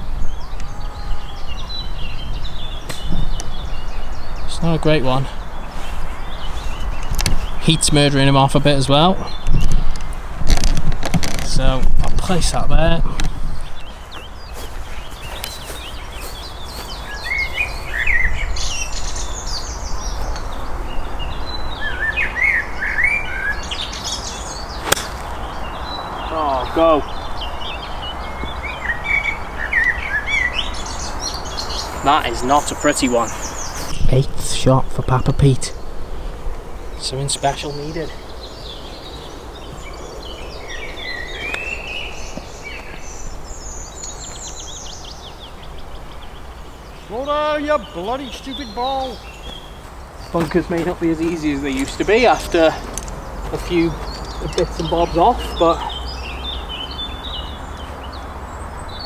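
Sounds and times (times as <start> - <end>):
songbirds chirping: 0.0 - 59.0
steady outdoor hum: 0.0 - 59.0
golf club striking ball: 24.8 - 25.4.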